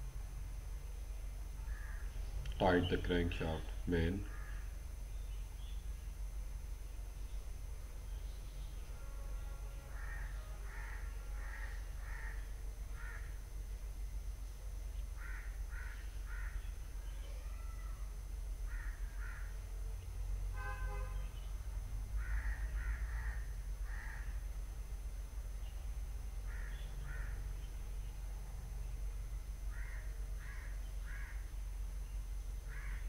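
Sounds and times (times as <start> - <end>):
low hum: 0.0 - 33.0
crows cawing: 1.7 - 2.1, 4.2 - 4.8, 9.9 - 13.4, 15.2 - 16.7, 18.6 - 19.6, 22.2 - 24.4, 26.4 - 27.5, 29.7 - 31.5, 32.7 - 33.0.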